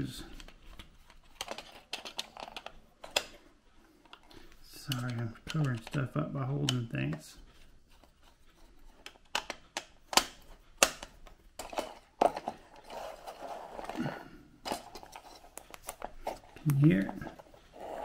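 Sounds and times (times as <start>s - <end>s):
rustling handling noise: 0.0s - 18.0s
sharp clicks and light taps: 4.0s - 7.2s.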